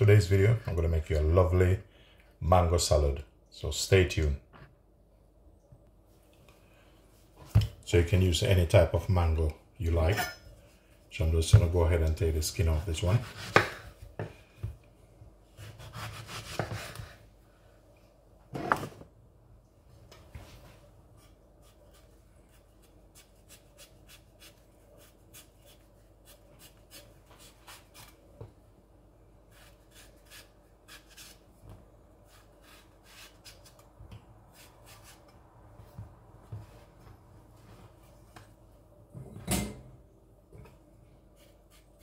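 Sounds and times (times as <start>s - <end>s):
knife scraping mango skin: 15.6s - 17.0s, 21.2s - 28.2s, 29.5s - 31.5s, 32.2s - 33.9s, 34.5s - 35.3s, 41.4s - 42.0s.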